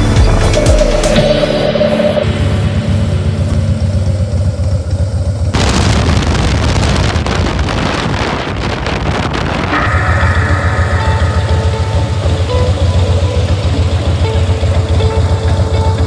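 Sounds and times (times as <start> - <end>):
motorcycle engine rumbling: 0.0 - 16.0
wind buffeting microphone: 5.5 - 11.1.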